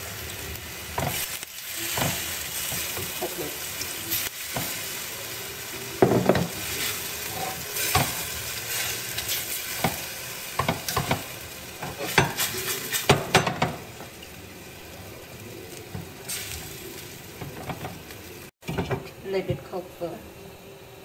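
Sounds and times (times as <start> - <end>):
chicken sizzling in a pot: 0.0 - 21.0
spatula scraping and knocking pot: 6.0 - 13.8, 17.4 - 18.0.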